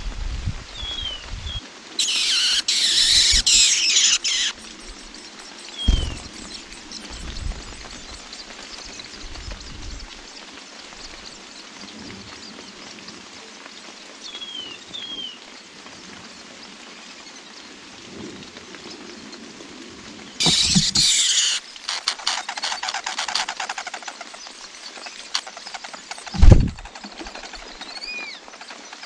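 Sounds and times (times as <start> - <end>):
rain hiss: 0.0 - 29.0
whistled bird chirps: 5.7 - 8.3.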